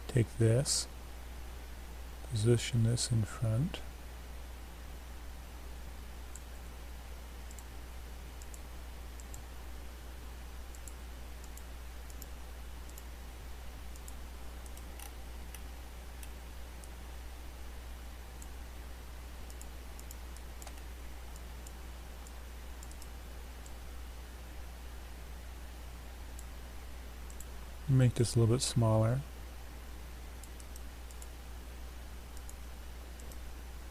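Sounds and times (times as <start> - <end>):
background hiss: 0.0 - 33.9
computer mouse clicks: 7.4 - 7.7, 8.4 - 9.5, 10.7 - 13.1, 13.9 - 17.0, 19.4 - 23.8, 26.3 - 26.6, 27.2 - 27.5, 30.4 - 31.4, 32.3 - 33.5.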